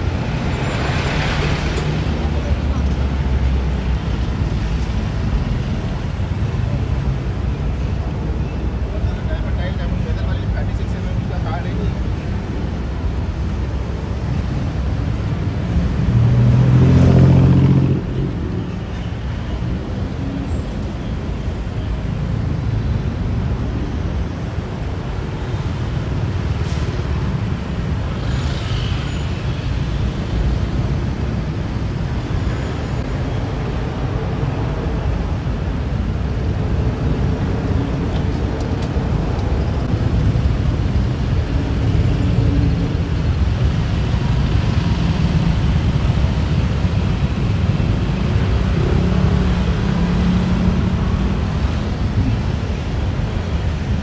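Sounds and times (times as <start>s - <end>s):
city road traffic rumble: 0.0s - 54.0s
loud engine passing: 16.1s - 18.4s.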